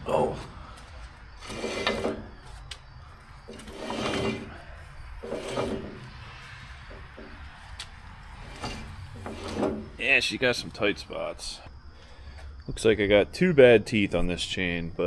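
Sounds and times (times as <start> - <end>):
digging chain rattling and clanking: 3.5 - 6.1.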